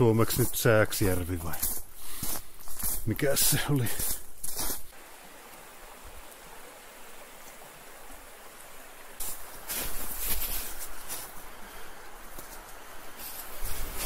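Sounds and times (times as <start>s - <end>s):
scuffing noises: 0.0s - 5.0s.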